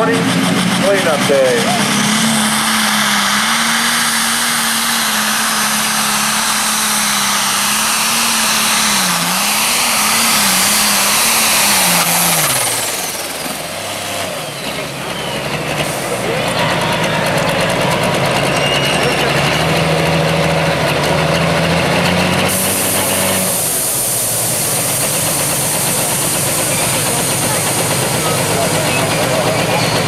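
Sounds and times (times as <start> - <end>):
diesel engine at full throttle: 0.0 - 30.0.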